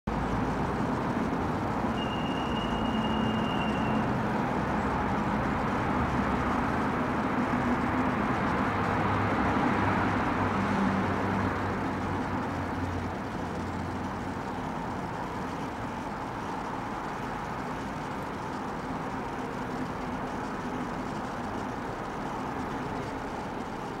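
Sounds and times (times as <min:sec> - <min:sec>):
high steady tone: 0:00.1 - 0:08.7
road traffic noise: 0:00.1 - 0:24.0.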